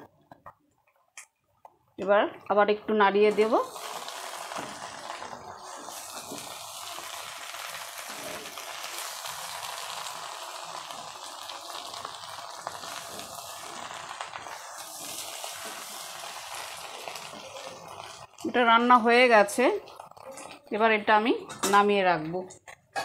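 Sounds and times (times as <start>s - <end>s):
fish frying in oil: 3.2s - 20.7s.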